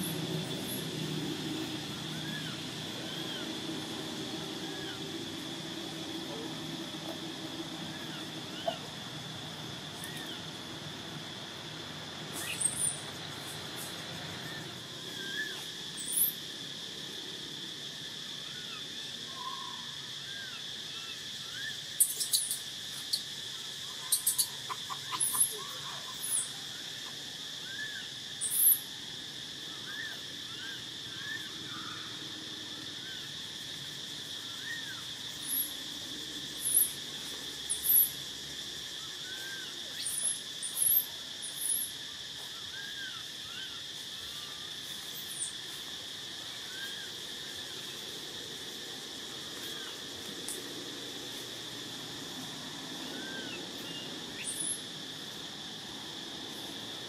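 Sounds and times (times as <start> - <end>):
insects droning: 0.0 - 57.0
high chirping calls: 12.4 - 13.1, 21.6 - 23.3.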